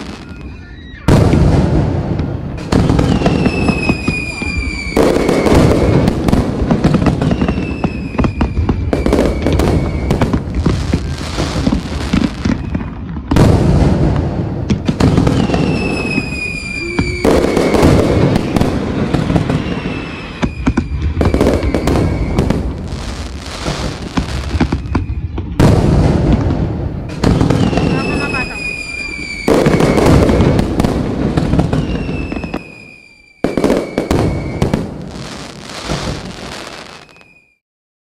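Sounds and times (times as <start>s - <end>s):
fireworks bangs and crackles: 0.0s - 37.6s
high falling whistle: 3.0s - 5.6s, 7.2s - 10.2s, 15.3s - 18.6s, 19.5s - 22.5s, 27.6s - 30.3s, 31.7s - 34.8s, 36.9s - 37.6s.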